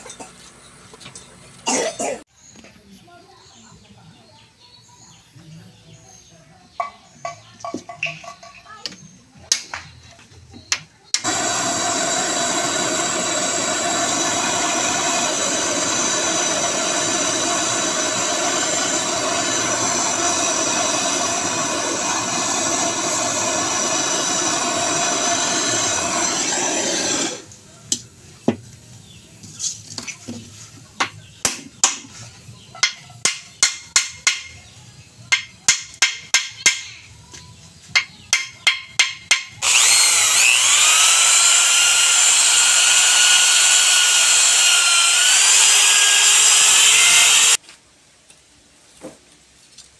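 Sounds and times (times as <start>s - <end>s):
gas torch burning: 11.1s - 28.0s, 39.3s - 47.6s
electric drill whining: 11.2s - 27.5s, 39.6s - 47.6s.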